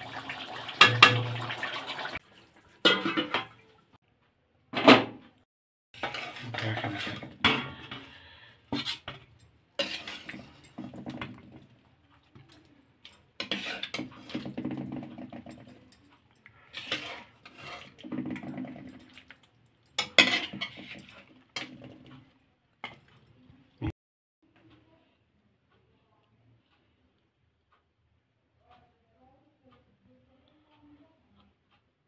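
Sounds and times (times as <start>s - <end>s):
steel ladle scraping a pot: 6.0s - 11.6s, 13.4s - 15.6s, 16.6s - 19.2s, 20.0s - 22.2s.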